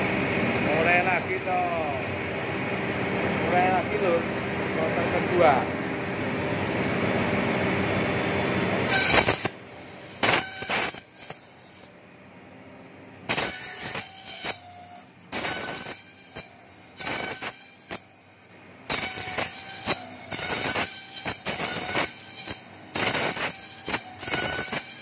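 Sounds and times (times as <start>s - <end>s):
machine cutting bamboo strips: 8.8s - 12.0s, 13.2s - 25.0s.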